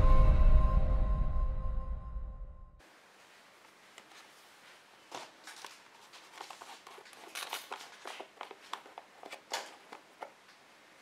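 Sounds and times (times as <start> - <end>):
plastic cap clicks and scrapes: 6.3 - 10.4.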